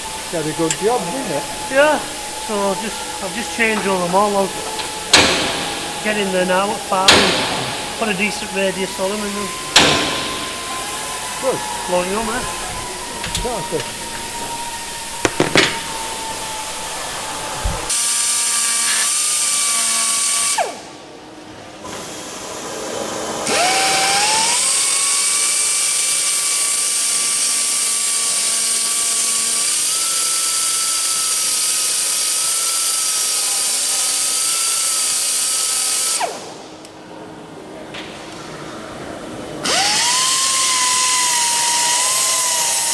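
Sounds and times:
exhaust air hiss: 0:00.0 - 0:18.4
pneumatic grinder whining: 0:00.0 - 0:20.8, 0:23.4 - 0:36.5, 0:39.6 - 0:42.9.

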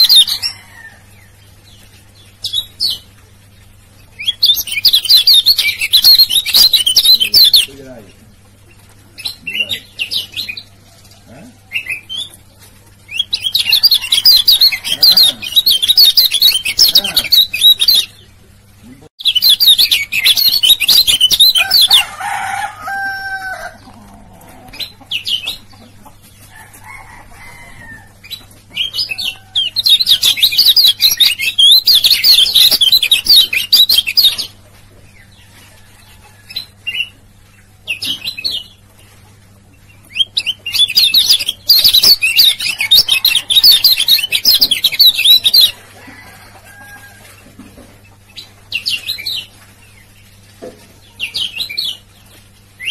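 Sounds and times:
bird chattering song: 0:00.0 - 0:10.7, 0:13.1 - 0:22.1, 0:24.7 - 0:26.3, 0:28.2 - 0:34.6, 0:39.8 - 0:45.8.

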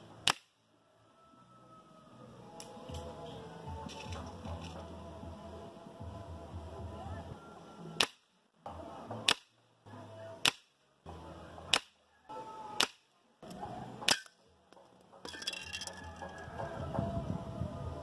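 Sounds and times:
pellet striking target: 0:08.0 - 0:08.4, 0:09.2 - 0:09.6, 0:10.4 - 0:10.8, 0:11.7 - 0:12.0, 0:12.8 - 0:13.1
air rifle shots: 0:09.2 - 0:09.5.

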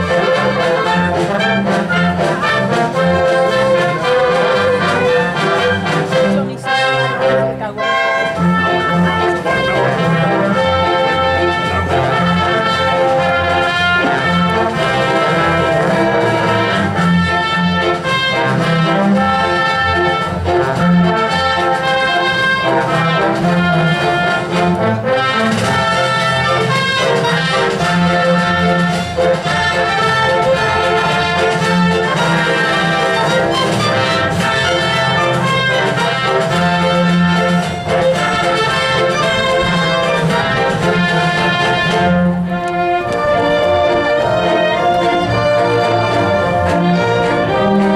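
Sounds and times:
brass playing: 0:00.0 - 0:47.9
strings playing: 0:00.0 - 0:47.9.

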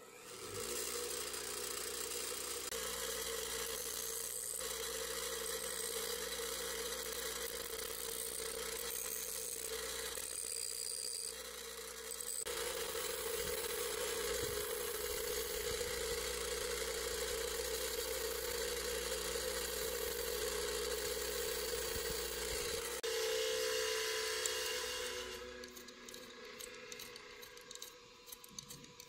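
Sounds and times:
bench grinder grinding screw: 0:00.0 - 0:29.0.

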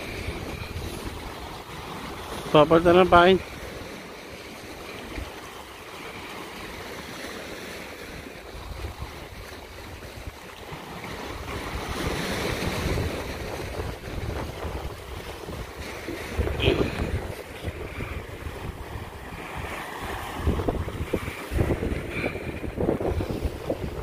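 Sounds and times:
wind buffeting the microphone: 0:00.0 - 0:02.2, 0:08.4 - 0:10.4, 0:11.1 - 0:24.0
sea waves washing against rocks: 0:00.0 - 0:24.0.

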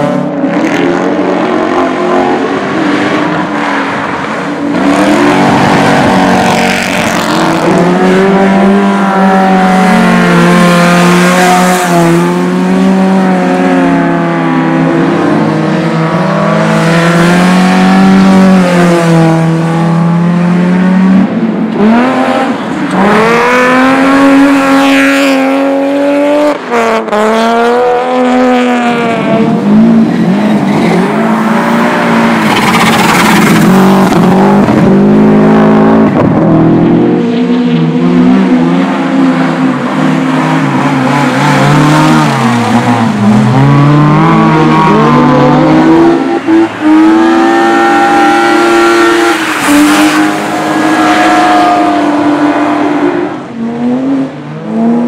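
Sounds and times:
rally car engines revving: 0:00.0 - 0:55.0.

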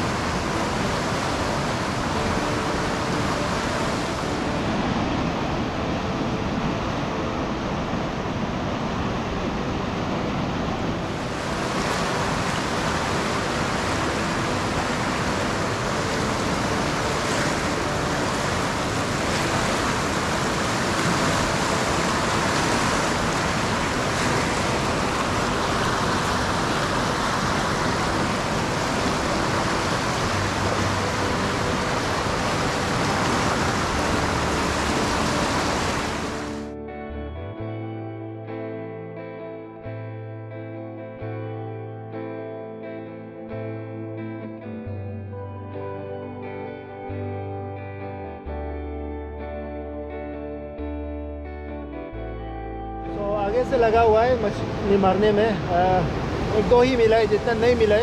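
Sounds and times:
river rapids rushing: 0:00.0 - 0:36.7, 0:53.1 - 0:58.0.

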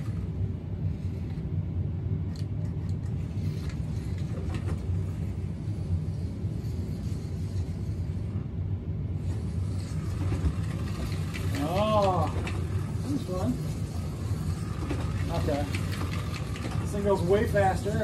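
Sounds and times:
slot car motor humming: 0:09.2 - 0:18.0.

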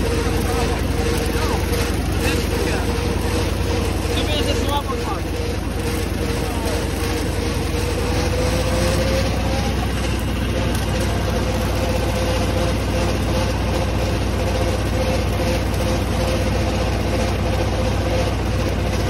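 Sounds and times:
steady whine: 0:00.0 - 0:19.0
tractor diesel engine running: 0:00.0 - 0:19.0.

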